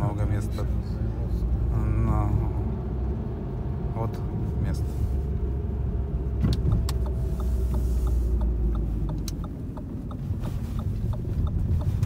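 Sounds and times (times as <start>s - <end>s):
car engine and tyres rumbling: 0.0s - 12.0s
regular light ticking: 6.5s - 12.0s
sharp clicks: 6.5s - 12.0s.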